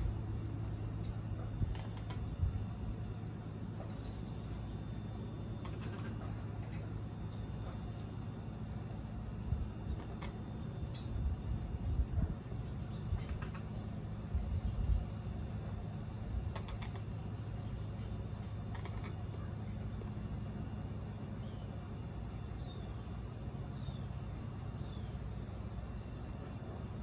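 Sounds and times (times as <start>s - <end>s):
low outdoor hum: 0.0s - 27.0s
parrot beak clicks: 16.5s - 17.0s.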